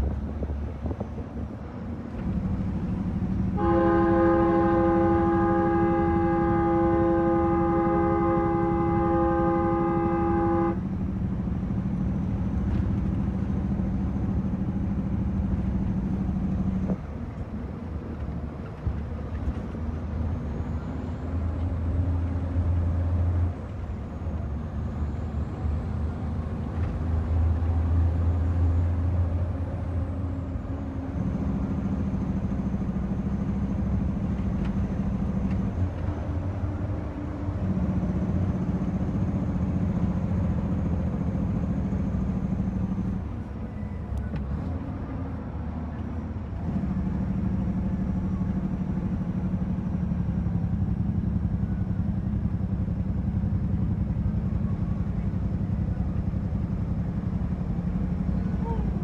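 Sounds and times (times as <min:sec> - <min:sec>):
diesel truck engine shifting gears: 0:00.0 - 0:59.0
truck horn: 0:03.5 - 0:11.0.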